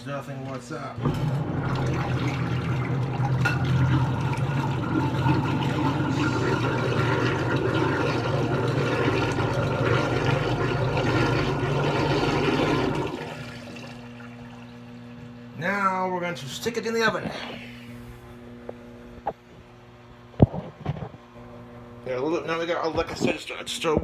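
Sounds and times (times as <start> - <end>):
water running: 0.4 - 15.4.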